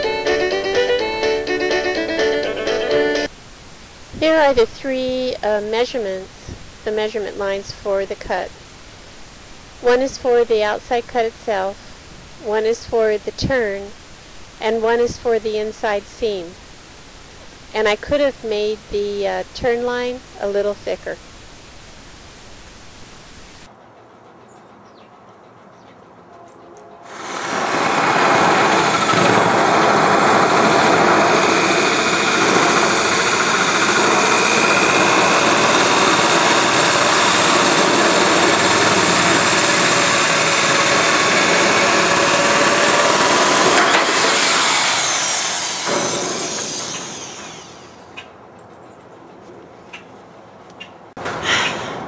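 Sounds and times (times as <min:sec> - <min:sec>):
electric shears cutting sheet metal: 0:27.1 - 0:48.2.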